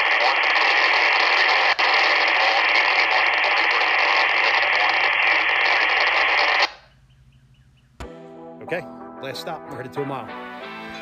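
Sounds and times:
radio static hiss: 0.0s - 6.9s.

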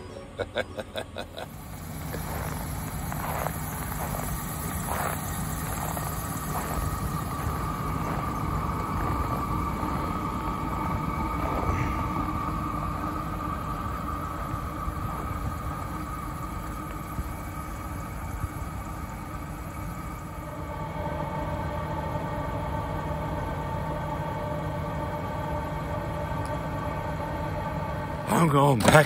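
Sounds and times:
steady higher hum: 0.0s - 29.0s
truck engine idling: 0.0s - 29.0s
wind buffeting microphone: 2.2s - 20.4s.

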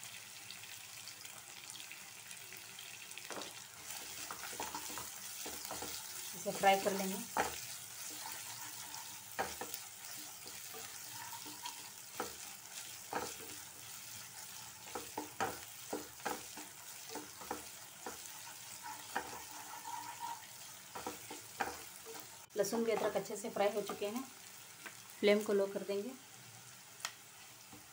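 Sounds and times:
garlic sizzling in oil: 0.0s - 27.9s
spatula scraping and knocking pan: 3.3s - 23.2s.

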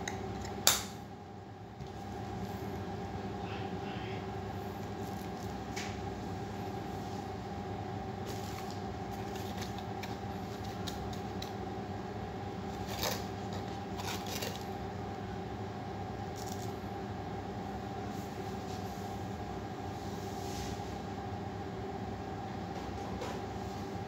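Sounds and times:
cardboard packaging rustling: 8.3s - 11.4s, 12.8s - 14.7s.

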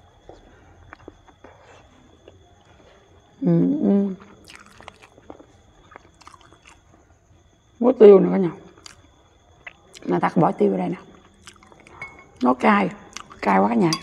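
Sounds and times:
person chewing with wet mouth clicks: 4.2s - 6.8s, 8.8s - 9.0s, 11.1s - 12.0s, 13.1s - 13.4s.

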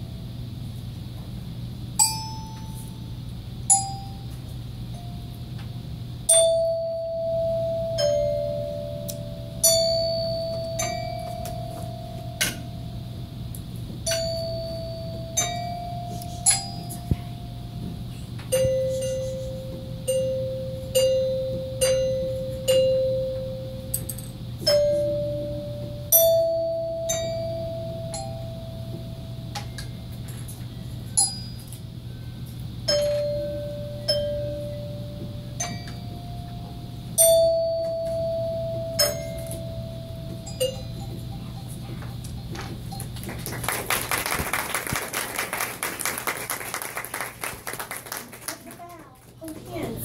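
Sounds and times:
steady low hum: 0.0s - 50.0s
tune on tuned bells: 6.3s - 13.4s, 14.0s - 17.6s, 32.9s - 41.7s.

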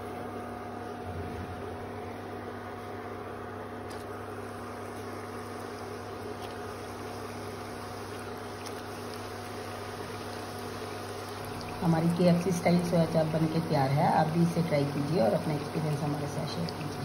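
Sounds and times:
induction cooktop hum: 0.0s - 17.0s
food deep-frying in hot oil: 3.9s - 17.0s.

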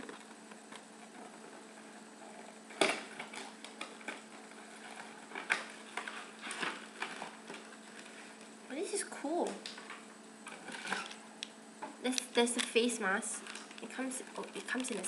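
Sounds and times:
packaging rustling: 2.8s - 8.6s, 9.7s - 11.3s, 12.1s - 15.0s.

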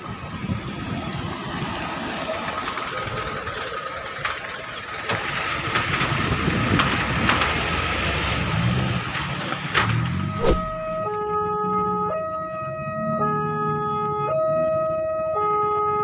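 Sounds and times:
train wheels rumbling on rails: 0.0s - 10.4s
wheels clacking over rail joints: 2.2s - 10.3s.

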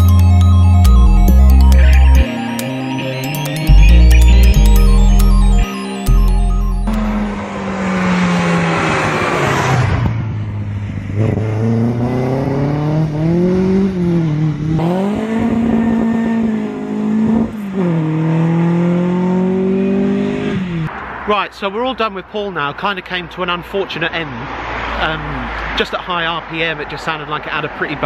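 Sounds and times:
car engine revving past: 6.9s - 21.2s.

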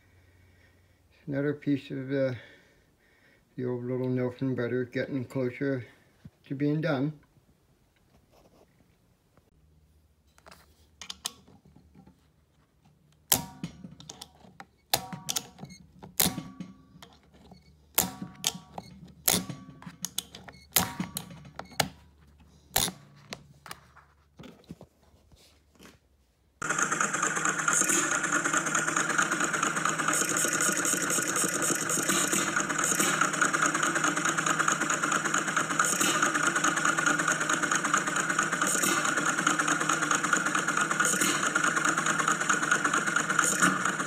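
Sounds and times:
sharp metallic clicks: 13.2s - 22.0s, 22.7s - 23.1s
stationary engine running: 13.3s - 22.0s, 26.6s - 44.0s.

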